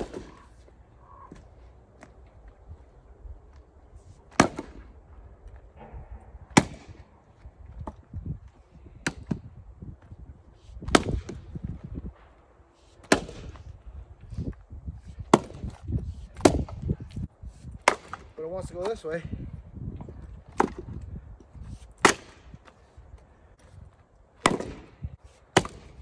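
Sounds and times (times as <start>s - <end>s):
axe splitting firewood: 4.2s - 4.9s, 5.9s - 7.0s, 7.6s - 9.4s, 10.8s - 11.8s, 12.9s - 13.7s, 14.4s - 19.0s, 20.4s - 22.8s, 24.4s - 26.0s.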